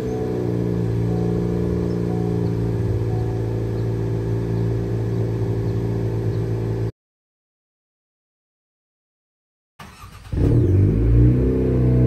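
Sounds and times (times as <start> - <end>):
car engine idling: 0.0 - 6.9.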